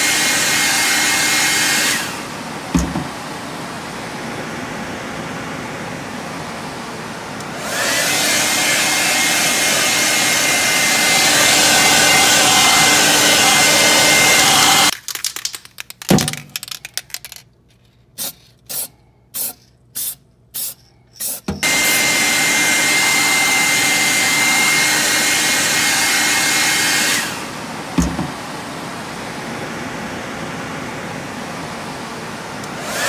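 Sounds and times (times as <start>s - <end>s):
hair dryer blowing: 0.0s - 14.9s, 21.6s - 33.0s
aerosol spray can hissing: 18.2s - 21.6s.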